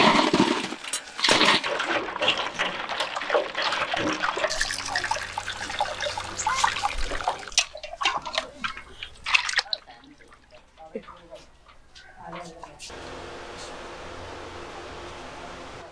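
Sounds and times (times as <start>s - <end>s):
ice clattering into metal pot: 0.0s - 9.7s
liquid splashing: 0.0s - 12.0s
ladle stirring and sloshing: 0.0s - 12.5s.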